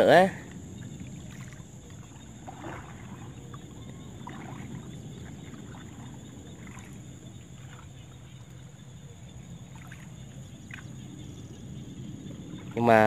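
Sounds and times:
paddle splashing in water: 0:00.3 - 0:13.0.

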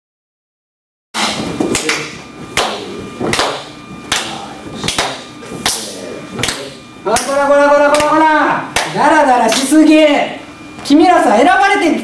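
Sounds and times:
hands clapping a steady beat: 0:01.2 - 0:09.7.

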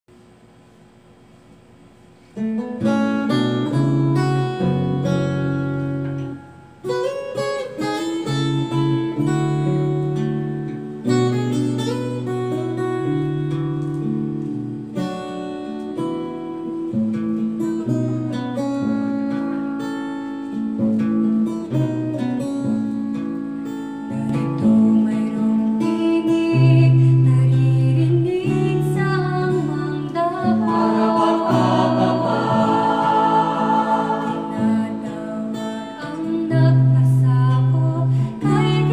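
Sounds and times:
acoustic guitar playing: 0:02.2 - 0:38.9
voices singing: 0:29.0 - 0:38.9.

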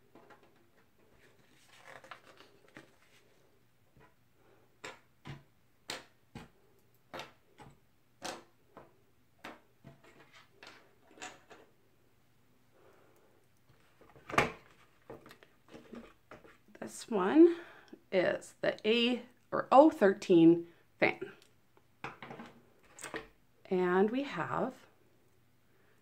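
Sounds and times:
soft rustle: 0:00.8 - 0:04.6.

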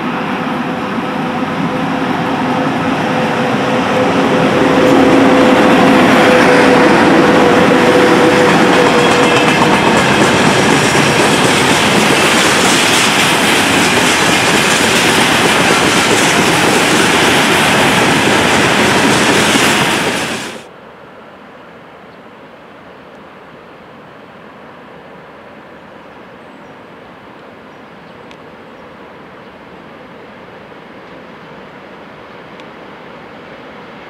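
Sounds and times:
electric locomotive hum: 0:00.0 - 0:20.7
train wheels rumbling on rails: 0:00.0 - 0:20.7.

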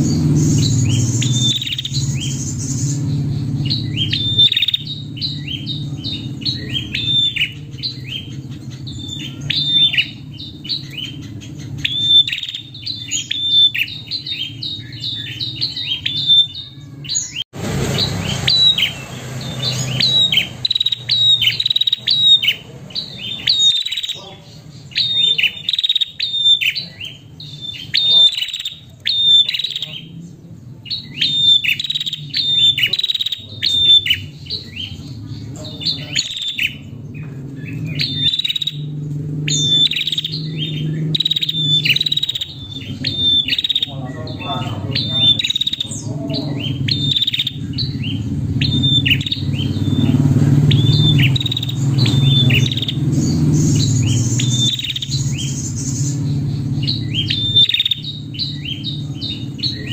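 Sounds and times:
bird chirping: 0:00.0 - 0:59.9.

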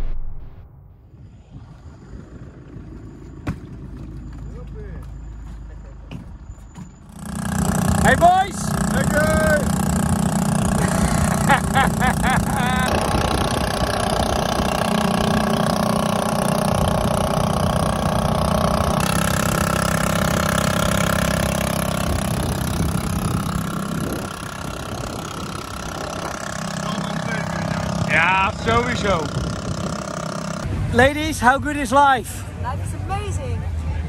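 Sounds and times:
outboard motor running: 0:06.8 - 0:30.9.

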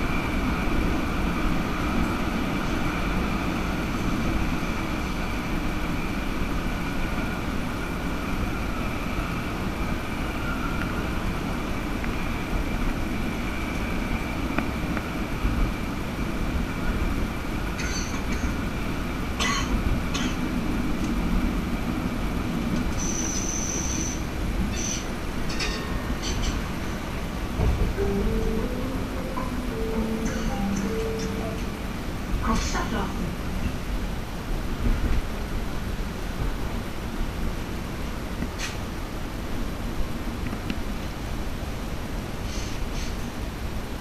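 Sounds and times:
tram rumbling on track: 0:00.0 - 0:44.0
high-pitched wheel squeals: 0:23.0 - 0:25.1.

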